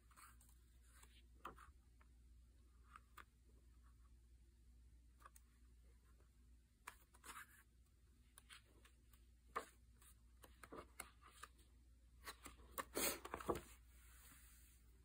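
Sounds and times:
book pages turning: 6.8 - 14.6.

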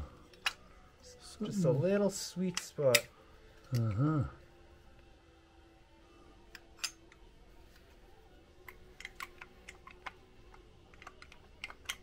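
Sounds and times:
metal parts clicking: 8.7 - 12.0.

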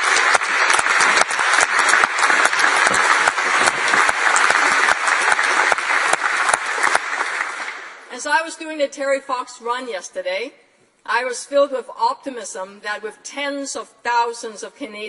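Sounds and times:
crowd applauding: 0.0 - 8.1.

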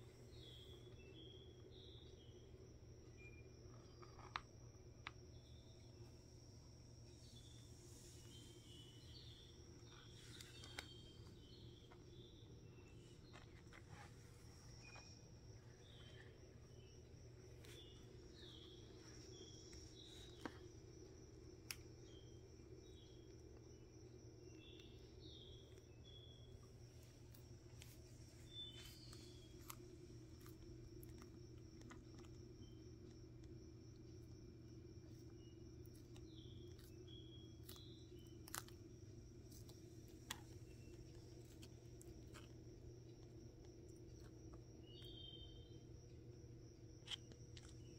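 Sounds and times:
low room hum: 0.0 - 47.9
tortoise biting lettuce: 26.9 - 33.6, 35.0 - 44.6.

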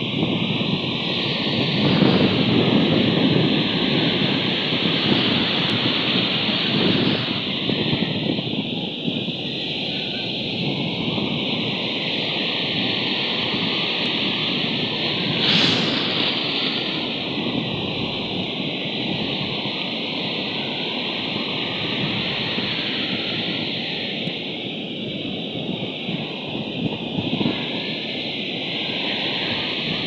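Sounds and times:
steady outdoor rushing noise: 0.0 - 30.0.

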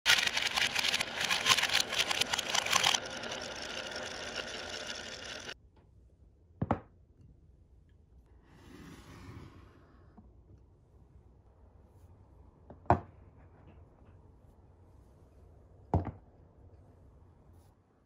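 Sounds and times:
mechanical clatter and whirring rattle: 0.0 - 5.6.

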